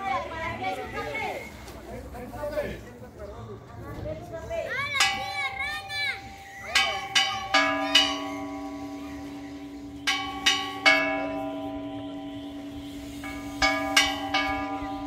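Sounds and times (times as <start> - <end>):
church bell ringing: 5.0 - 15.0.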